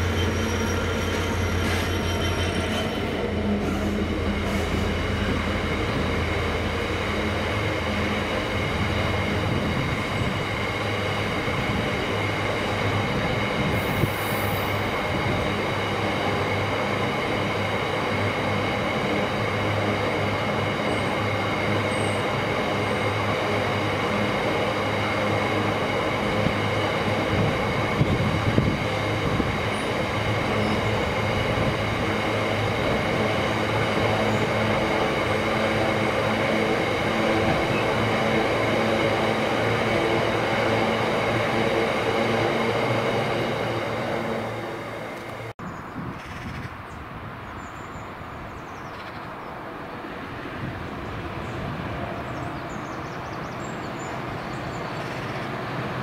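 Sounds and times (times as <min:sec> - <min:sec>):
train wheels squealing: 0:00.0 - 0:05.1, 0:13.6 - 0:14.9, 0:20.8 - 0:23.2, 0:52.2 - 0:55.8
diesel locomotive engine droning: 0:00.0 - 0:45.6, 0:46.9 - 0:56.0.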